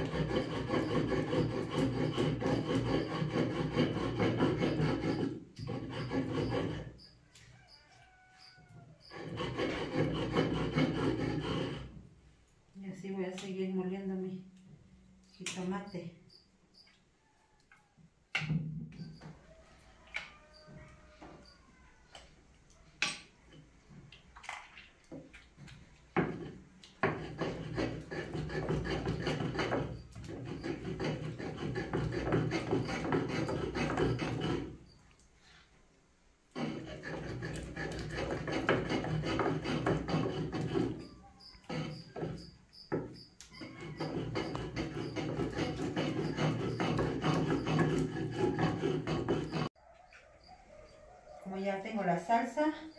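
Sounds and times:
rasping stone-on-stone grinding: 0.0 - 7.2, 9.0 - 12.0, 26.2 - 35.0, 36.5 - 49.8.

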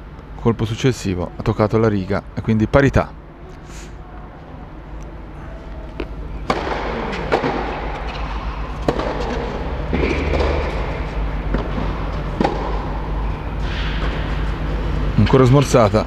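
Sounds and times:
steady low hum: 0.0 - 16.0
racket hitting tennis ball: 6.0 - 14.6.

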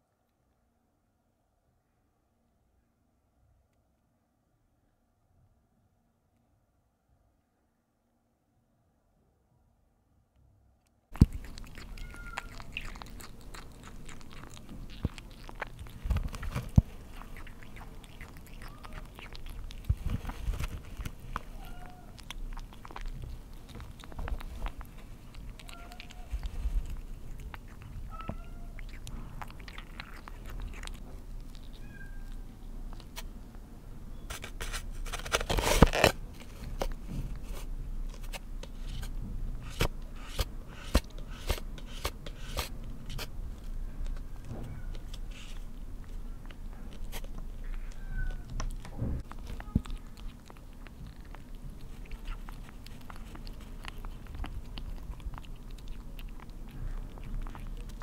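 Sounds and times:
kitten mewing: 11.1 - 33.3, 44.1 - 58.0
kitten chewing wet food: 11.1 - 58.0.

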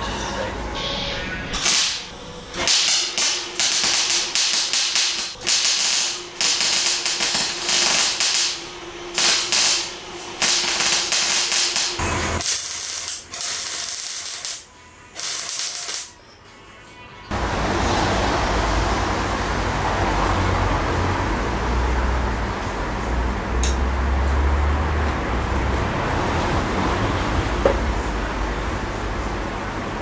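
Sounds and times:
welding arc crackling: 1.6 - 16.2.

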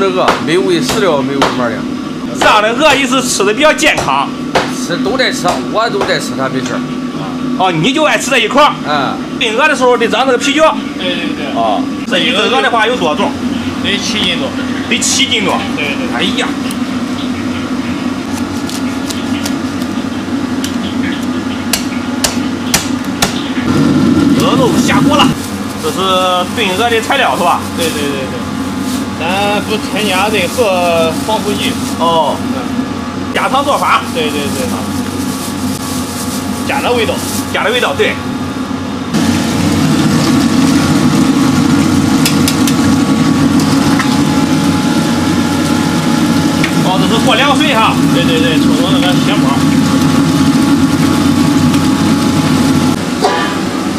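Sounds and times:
gas burner rushing: 0.0 - 53.9
steady low hum: 0.0 - 53.9
cleaver chopping on wooden block: 21.7 - 23.4.

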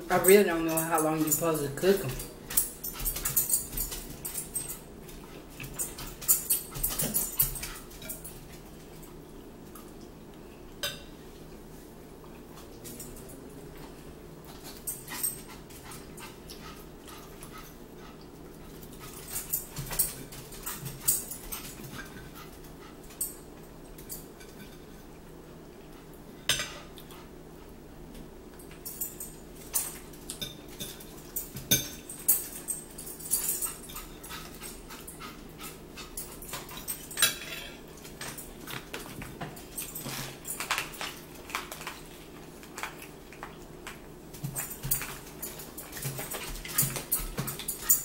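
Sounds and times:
fork scraping on a plate: 37.2 - 37.8.

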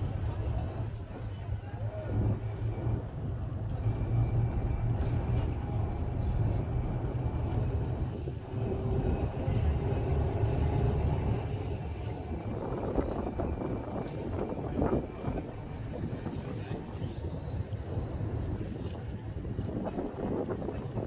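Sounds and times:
tram rolling on rails: 0.0 - 21.0
wind buffeting microphone: 0.0 - 21.0.

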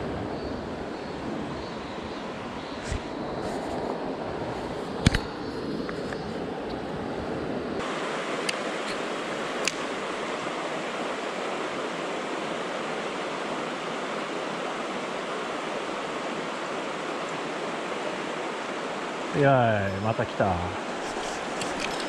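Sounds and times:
stream rushing over rocks: 7.8 - 22.0.

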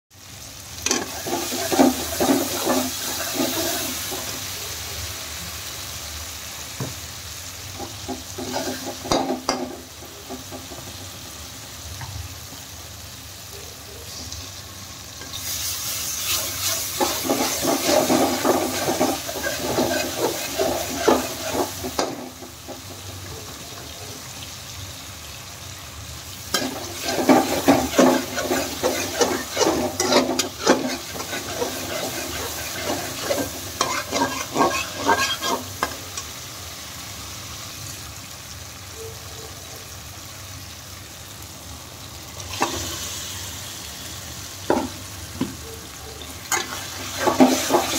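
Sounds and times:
spices sizzling in oil: 0.1 - 47.9
spatula scraping a pan: 0.9 - 4.4, 7.8 - 10.8, 15.2 - 23.0, 26.5 - 36.3, 46.5 - 47.9.

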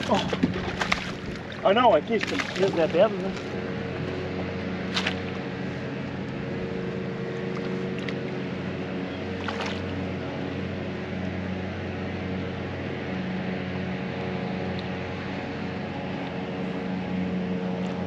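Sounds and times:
water noise: 0.0 - 10.7
boat motor humming: 0.0 - 18.0
wind: 0.0 - 18.0.

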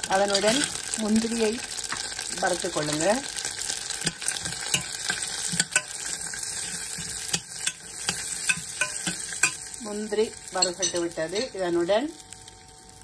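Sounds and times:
nuts sizzling in a pan: 0.0 - 13.0
metal spoon scraping steel pan: 4.0 - 9.6, 10.6 - 11.6.

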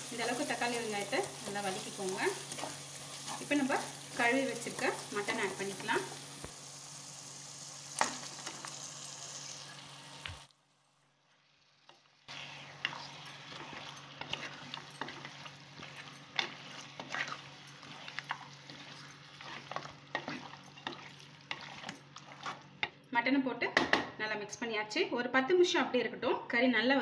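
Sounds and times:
food sizzling in a pot: 0.0 - 23.0
wooden spatula scraping a pot: 0.2 - 6.2, 12.3 - 23.0.

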